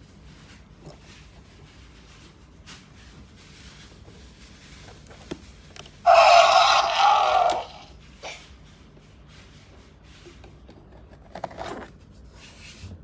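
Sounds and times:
toy electronic roar: 0:06.0 - 0:07.9.

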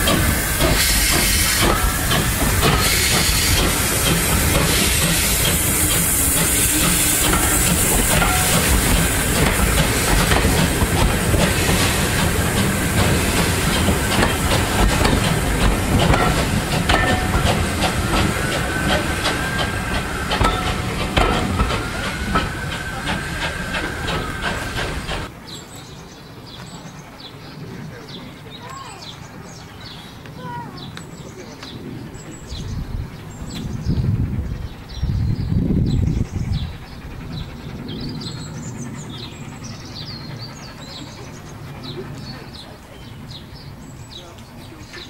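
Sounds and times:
locomotive steam hissing: 0:00.0 - 0:25.4, 0:32.0 - 0:45.0
wheels clattering over rail joints: 0:00.0 - 0:25.4.

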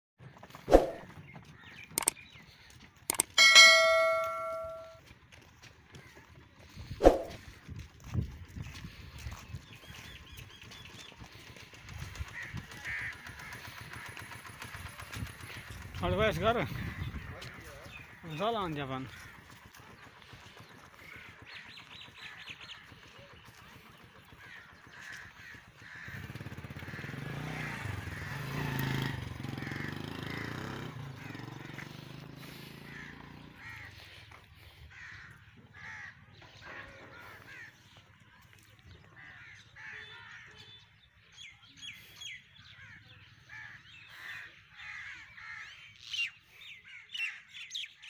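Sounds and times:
birds calling: 0:00.2 - 0:05.0, 0:05.9 - 0:07.6, 0:08.5 - 0:48.0
high bird chirps: 0:01.8 - 0:02.2, 0:03.1 - 0:05.0.

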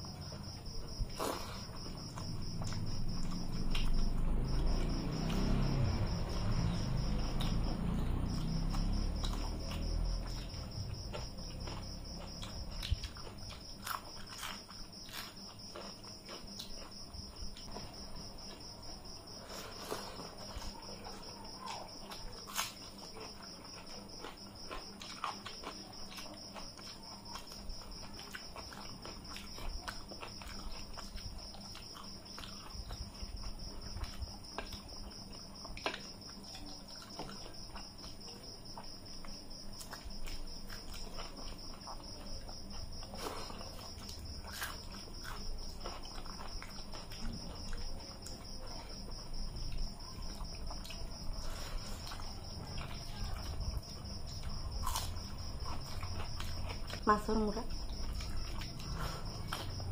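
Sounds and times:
chewing and lip sounds: 0:00.0 - 0:59.9.

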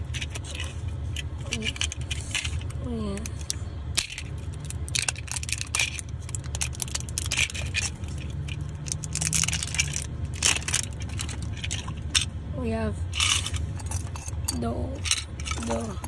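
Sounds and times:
steady low hum: 0:00.0 - 0:16.0
plastic wrapper crinkling: 0:04.2 - 0:12.2.

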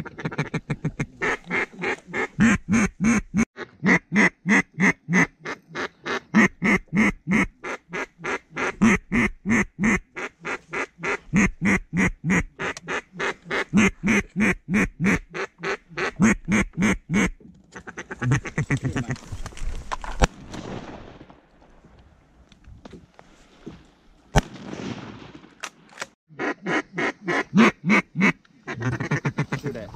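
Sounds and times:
duck call quacks: 0:00.0 - 0:19.0, 0:26.3 - 0:29.7
sharp crack: 0:19.9 - 0:21.8, 0:24.3 - 0:26.2.

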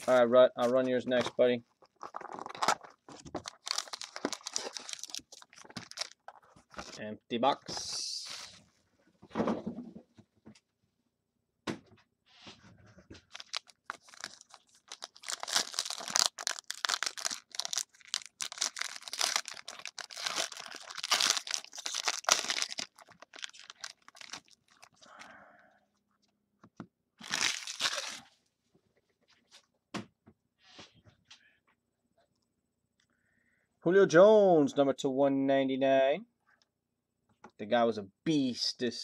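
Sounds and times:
foil wrapper crinkling and tearing: 0:01.8 - 0:07.0, 0:13.3 - 0:25.0, 0:27.2 - 0:28.2.

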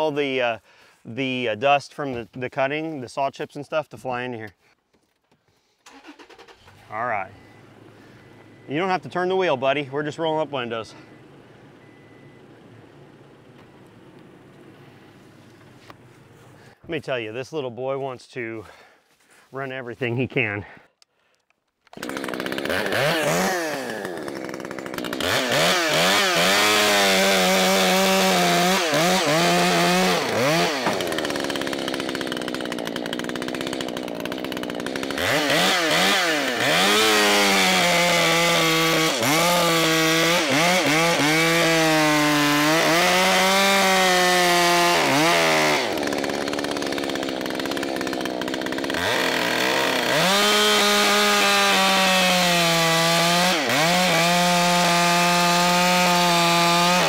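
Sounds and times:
chainsaw revving: 0:05.9 - 0:12.5, 0:21.9 - 0:57.0.

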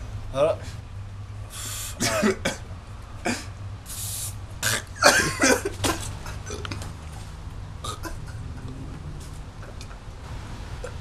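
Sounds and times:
man coughing and sputtering: 0:02.0 - 0:03.6, 0:04.6 - 0:06.8, 0:07.8 - 0:08.7
aerosol spray hiss: 0:03.8 - 0:04.4.

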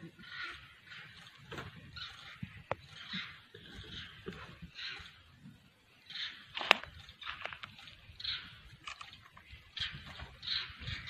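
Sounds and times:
small clicks: 0:06.5 - 0:09.5.

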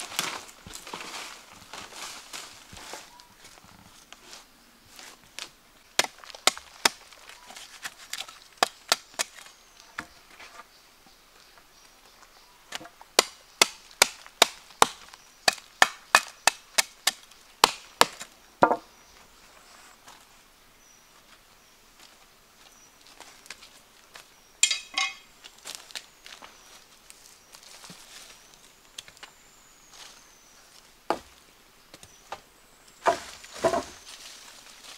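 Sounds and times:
axe chopping wood: 0:06.0 - 0:07.1, 0:12.7 - 0:18.8.

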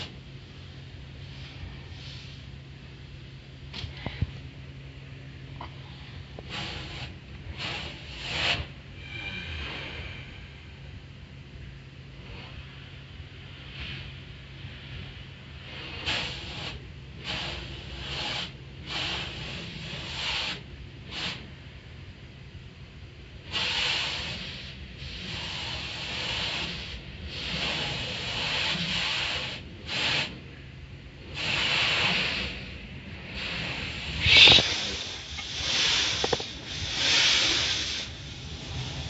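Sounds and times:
steady low hum: 0:00.0 - 0:39.0
car wash water jets spraying: 0:15.7 - 0:21.6, 0:23.4 - 0:30.4, 0:31.2 - 0:39.0.

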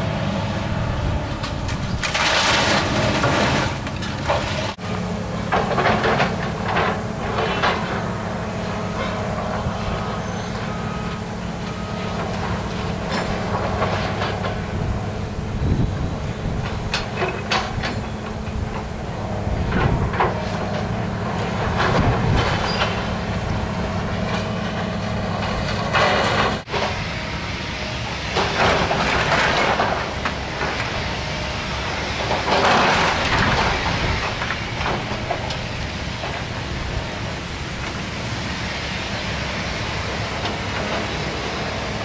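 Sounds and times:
diesel engine running: 0:00.0 - 0:42.0
debris crunching and crashing: 0:01.4 - 0:04.8, 0:32.2 - 0:38.0.

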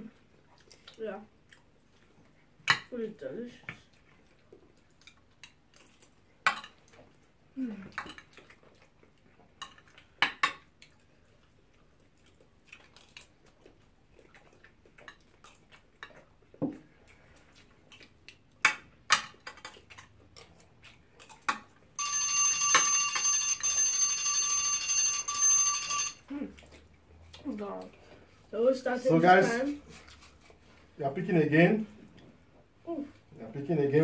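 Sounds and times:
timer alarm ringing: 0:22.0 - 0:26.2.

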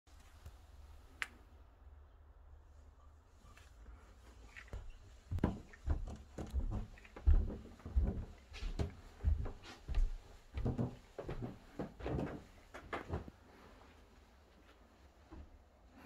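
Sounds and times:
footsteps on carpeted stairs: 0:04.3 - 0:16.0.

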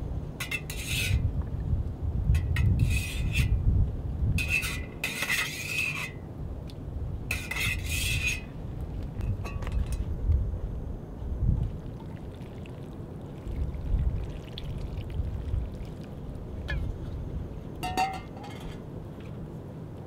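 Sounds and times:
low wind rumble: 0:00.0 - 0:05.1, 0:06.0 - 0:20.0
cutlery scraping in metal mug: 0:00.4 - 0:01.2, 0:02.4 - 0:03.6, 0:04.4 - 0:06.2, 0:07.3 - 0:08.5, 0:17.8 - 0:18.8.

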